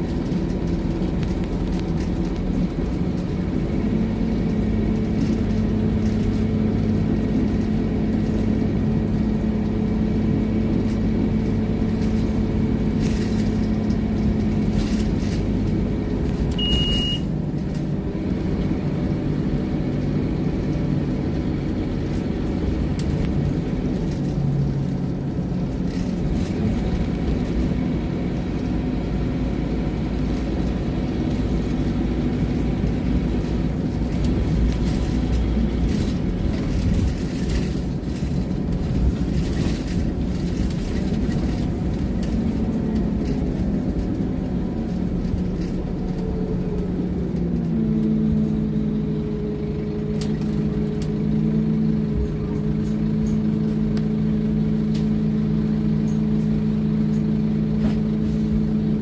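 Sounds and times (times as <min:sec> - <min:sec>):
bus engine drone: 0:00.0 - 0:59.0
road rumble: 0:00.0 - 0:59.0
short high beep: 0:16.6 - 0:17.3.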